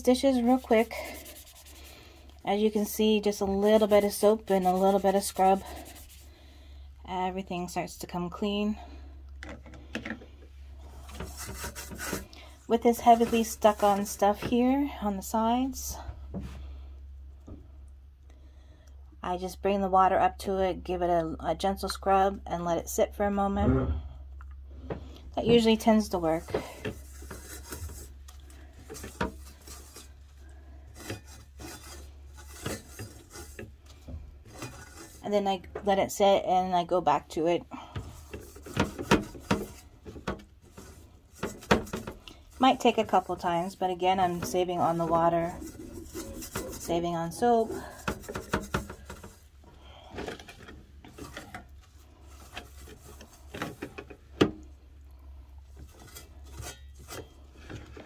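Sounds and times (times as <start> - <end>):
sponge scrubbing metal pot: 0.0 - 6.5, 10.8 - 14.8, 25.4 - 36.1, 36.8 - 54.3
sharp scrape: 0.3 - 2.1, 3.7 - 6.3.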